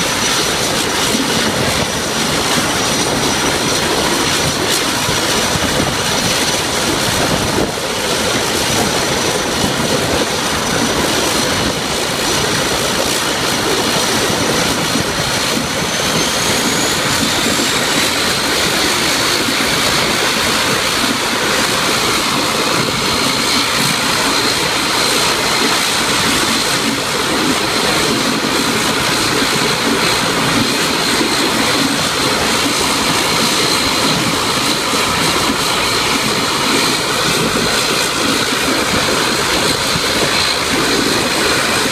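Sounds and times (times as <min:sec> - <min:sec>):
propeller noise: 0:00.0 - 0:41.9
turbine whine: 0:00.0 - 0:41.9.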